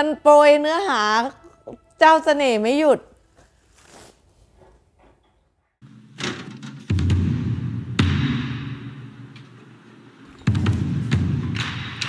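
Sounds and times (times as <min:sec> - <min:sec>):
heavy drum hits: 0:05.8 - 0:09.3
dramatic background music: 0:05.9 - 0:12.0.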